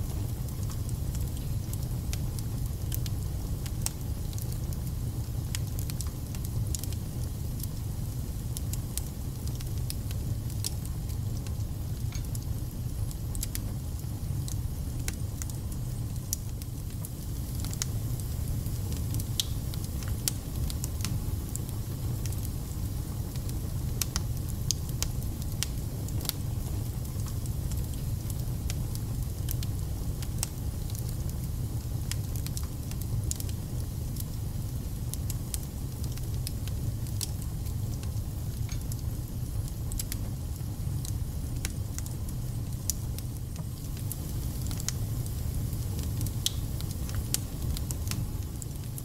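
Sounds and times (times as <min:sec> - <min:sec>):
fire crackling and popping: 0:00.0 - 0:49.0
fire rumbling: 0:00.0 - 0:49.0.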